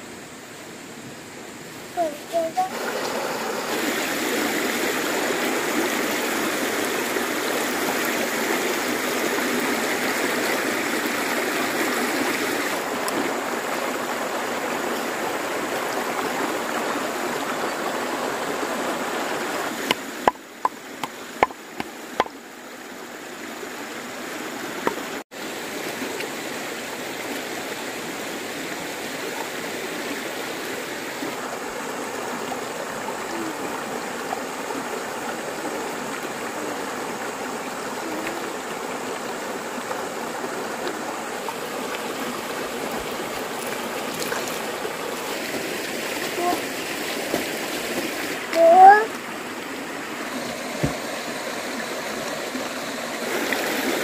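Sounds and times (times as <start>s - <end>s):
stream running over rocks: 0.0s - 54.0s
sharp knocks: 19.8s - 22.3s.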